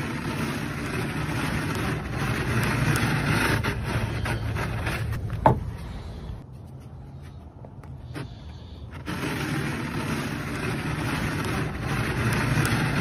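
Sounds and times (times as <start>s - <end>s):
spatula scraping frost off glass: 0.0s - 5.3s, 8.2s - 13.0s.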